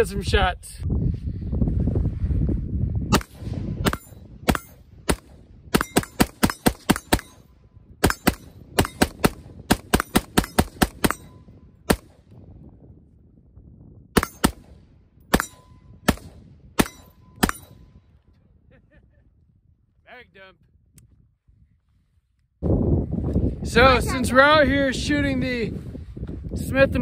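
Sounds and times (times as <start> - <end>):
rifle gunshots: 3.1 - 7.4, 8.0 - 12.2, 14.2 - 17.8.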